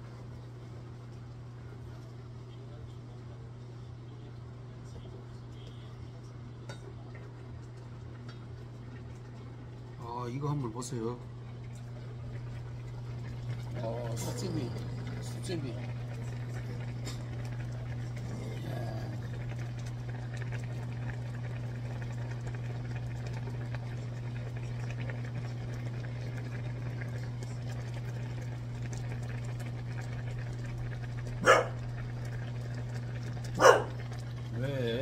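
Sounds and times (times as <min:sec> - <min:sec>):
dog barking: 0:31.4 - 0:31.8, 0:33.6 - 0:34.0.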